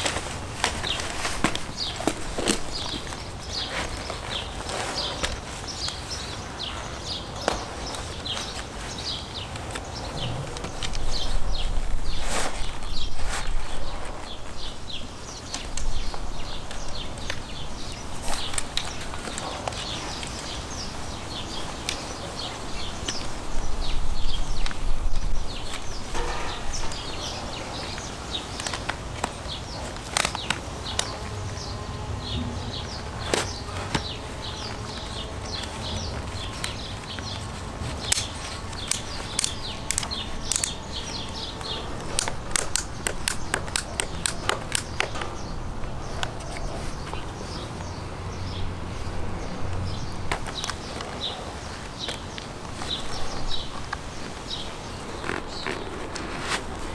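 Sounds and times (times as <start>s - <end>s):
buckles clicking: 0.0s - 6.0s, 25.7s - 31.3s, 33.2s - 47.9s
birds chirping: 0.0s - 56.9s.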